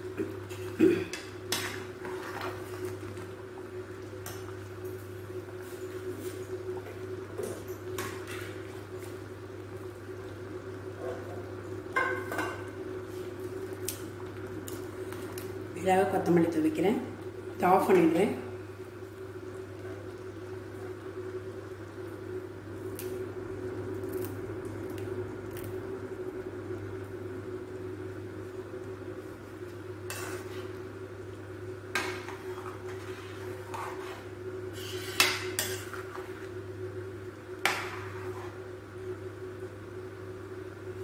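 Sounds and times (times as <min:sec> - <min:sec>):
ladle stirring gravy in pan: 0:29.9 - 0:36.6, 0:37.6 - 0:38.7.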